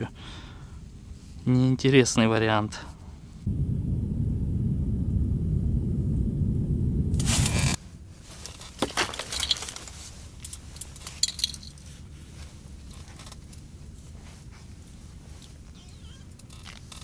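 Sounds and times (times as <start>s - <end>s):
low rumble: 3.2s - 7.9s.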